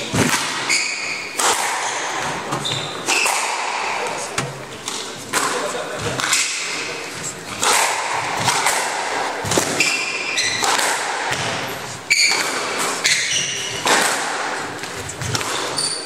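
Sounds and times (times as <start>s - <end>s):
squash ball cracking off rackets: 0.0s - 6.8s, 7.4s - 16.0s
shoes squeaking on wooden floor: 2.2s - 3.2s, 11.6s - 12.4s, 13.0s - 13.8s, 14.8s - 16.0s.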